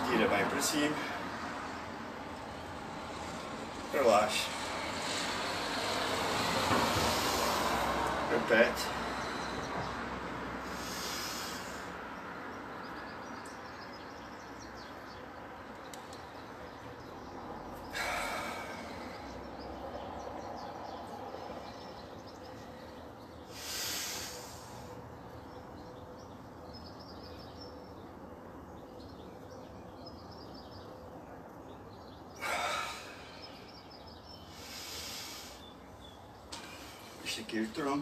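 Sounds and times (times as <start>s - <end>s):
steady background noise: 0.0s - 38.0s
person breathing deeply: 6.8s - 7.9s, 10.5s - 12.2s, 17.8s - 19.6s, 22.6s - 25.0s, 34.4s - 36.0s.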